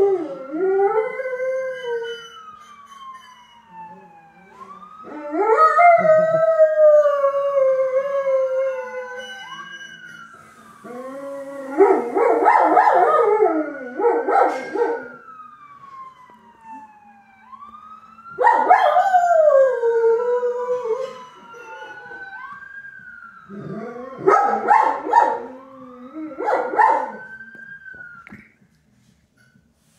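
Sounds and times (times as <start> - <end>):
ambulance siren wailing: 0.0 - 28.6
dog howling: 18.4 - 22.4.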